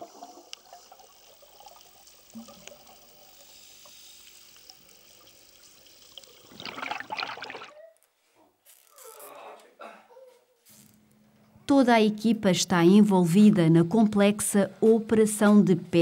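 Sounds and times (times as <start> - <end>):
scuba exhaust bubbles: 0.0 - 7.7
faint underwater crackling clicks: 0.5 - 0.8, 1.7 - 3.1.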